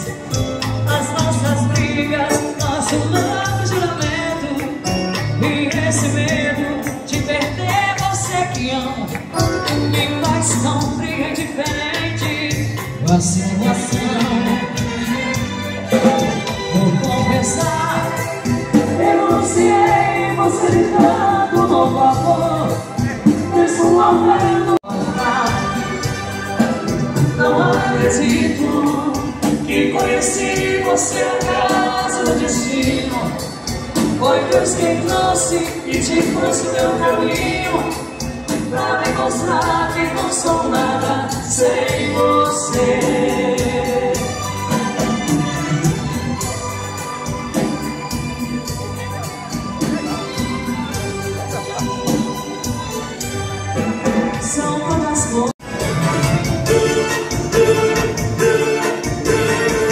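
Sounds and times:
drum kit: 0.0s - 59.9s
live dance band playing: 0.0s - 59.9s
woman singing into a microphone: 0.8s - 15.3s, 17.1s - 26.0s, 34.1s - 45.2s.

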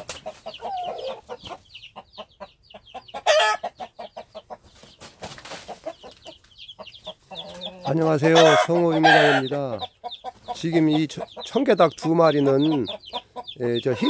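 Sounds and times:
hens clucking: 0.0s - 14.0s
hen squawking: 0.3s - 1.6s, 6.8s - 14.0s.

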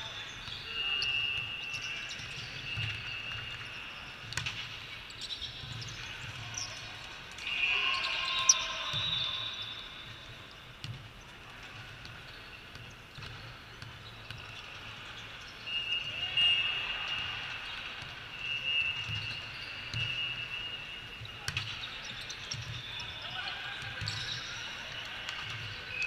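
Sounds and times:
volleyballs hit and bouncing: 1.4s - 7.6s, 10.0s - 15.7s, 19.0s - 26.0s.

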